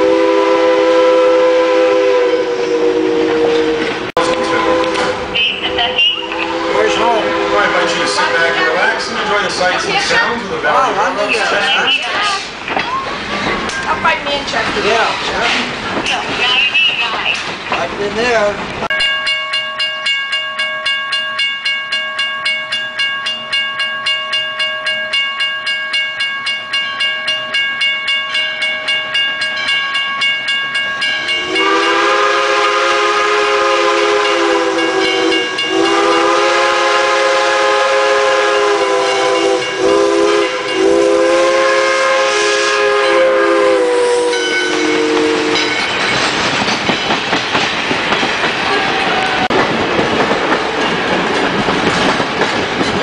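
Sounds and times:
steam locomotive chime whistle: 0.0 - 9.5, 18.9 - 46.1
train wheels clacking over rail joints: 12.4 - 18.8, 44.7 - 53.0
crossing signal bell ringing: 18.9 - 32.6, 34.2 - 36.5, 38.9 - 41.4, 43.0 - 46.4.

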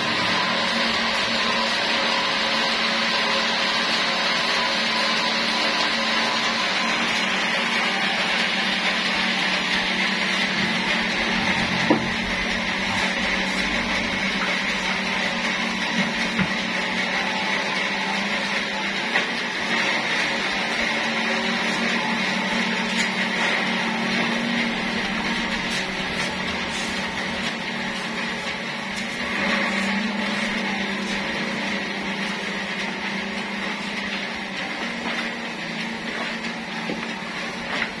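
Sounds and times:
sawmill machinery humming and whining: 0.0 - 38.0.

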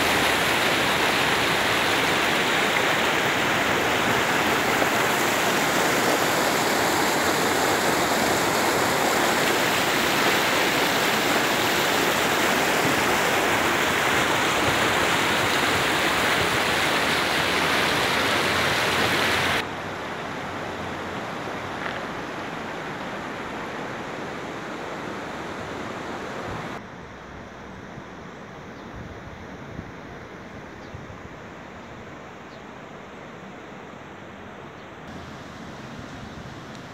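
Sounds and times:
river water rushing over rocks: 0.0 - 26.8, 35.1 - 36.9.

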